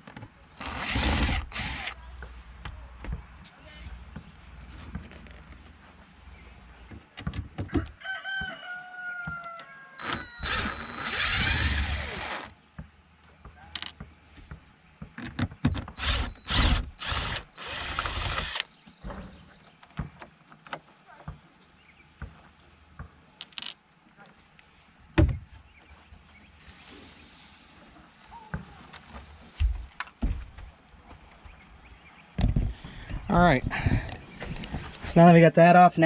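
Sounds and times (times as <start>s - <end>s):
cordless drill driving screws: 0.6s - 2.0s, 10.0s - 12.5s, 15.8s - 18.7s
rooster crowing: 7.7s - 10.4s.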